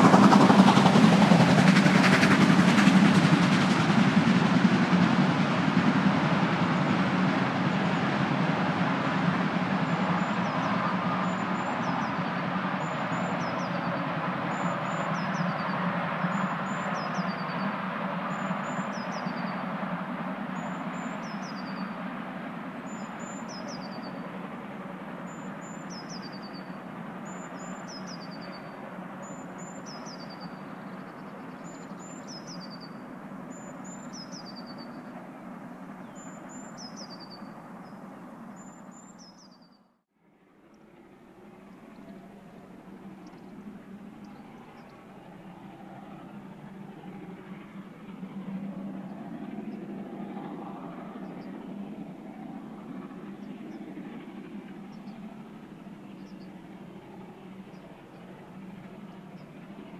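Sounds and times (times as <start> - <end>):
steam locomotive exhaust: 0.0 - 38.0.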